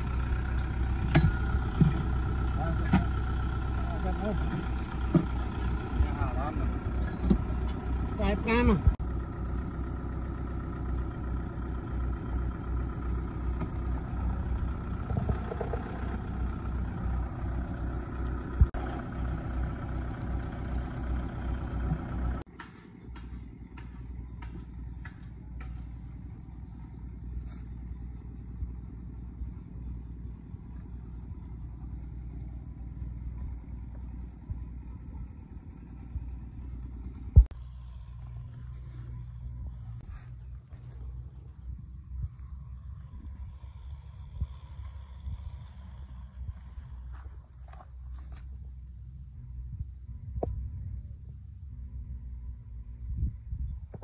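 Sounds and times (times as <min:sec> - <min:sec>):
tractor diesel engine idling: 0:00.0 - 0:50.2.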